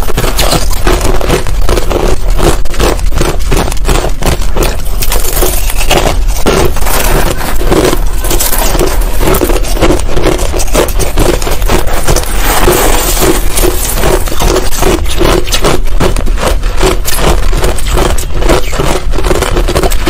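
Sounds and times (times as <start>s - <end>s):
crushed ice crunching while chewed: 0.0s - 20.0s
metal spoon scraping ice in bowl: 4.5s - 20.0s.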